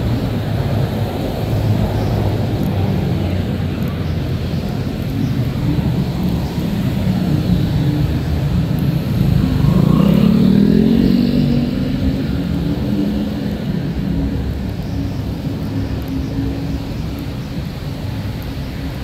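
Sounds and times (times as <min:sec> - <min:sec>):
car engines rumbling: 0:00.0 - 0:19.0
vehicle passing close: 0:06.5 - 0:14.7.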